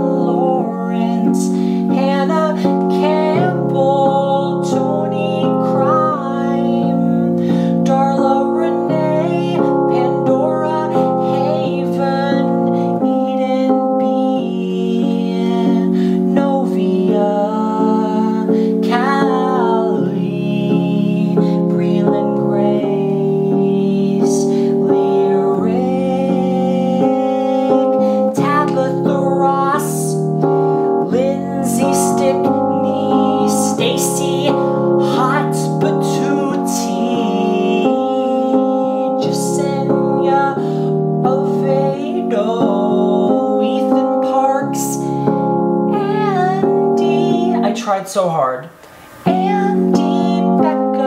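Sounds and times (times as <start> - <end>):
digital piano chords: 0.0 - 51.0
man singing: 31.1 - 40.6, 41.2 - 45.0, 46.0 - 48.7, 49.3 - 51.0.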